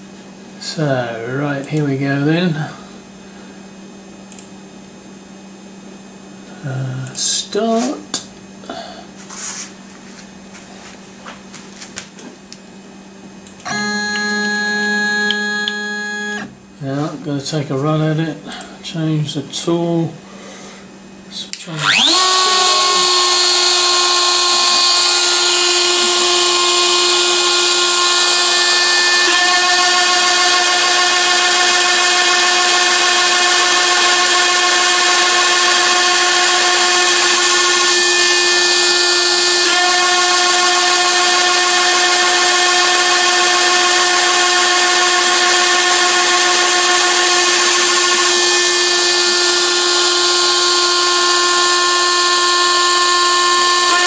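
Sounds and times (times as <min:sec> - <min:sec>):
router spindle whining: 0:13.6 - 0:16.5, 0:21.5 - 0:54.0
extra tone: 0:13.6 - 0:20.1.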